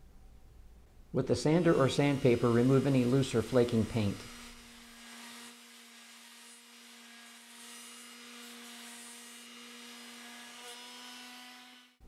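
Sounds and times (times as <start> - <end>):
electric sander on wood: 1.3 - 12.0.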